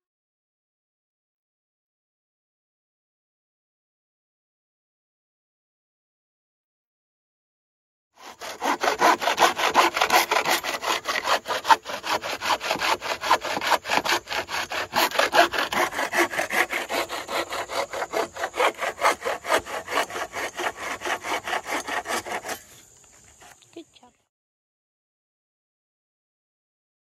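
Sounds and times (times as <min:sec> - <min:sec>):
bow saw cutting wood: 0:08.2 - 0:23.8.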